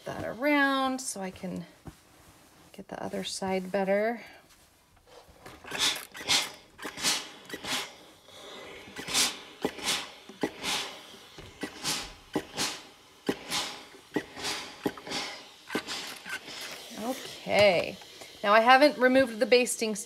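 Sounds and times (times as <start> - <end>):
steam iron hissing strokes: 5.1 - 20.0.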